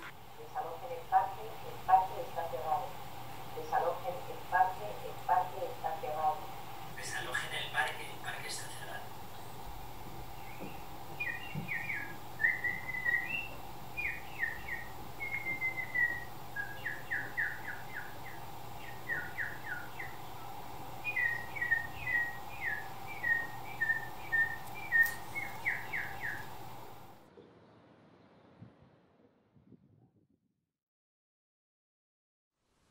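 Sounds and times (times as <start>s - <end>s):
steady low hum: 0.0s - 28.8s
birdlike chirping whistles: 10.4s - 26.5s.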